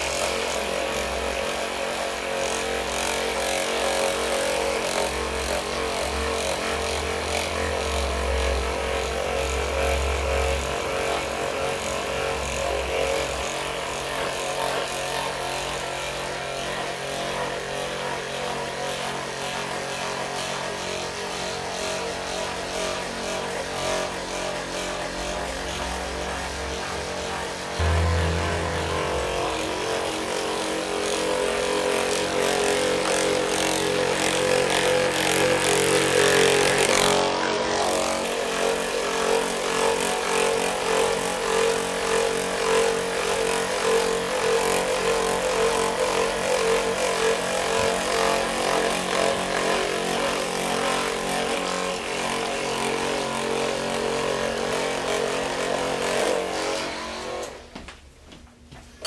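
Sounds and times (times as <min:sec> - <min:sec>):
massage gun hammering: 0:27.8 - 0:31.8.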